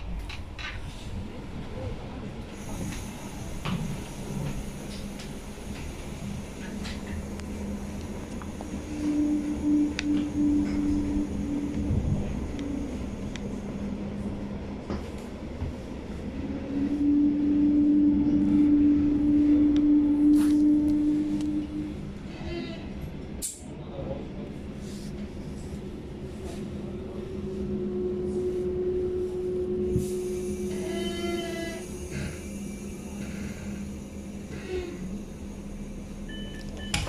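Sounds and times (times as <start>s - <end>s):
train rumbling: 0.0s - 37.0s
short pitched door beeping: 36.3s - 37.0s.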